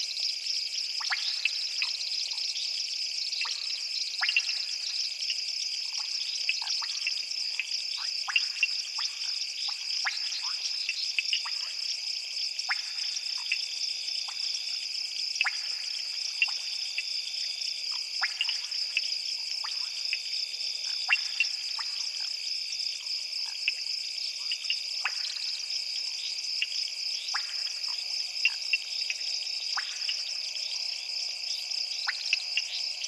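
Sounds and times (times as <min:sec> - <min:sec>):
short sharp frog calls: 0:03.3 - 0:05.1, 0:12.6 - 0:33.0.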